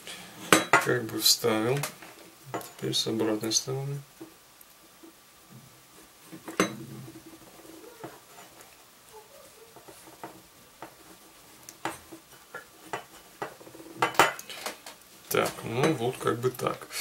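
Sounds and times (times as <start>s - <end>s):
plastic and wire rustling: 4.2s - 16.9s.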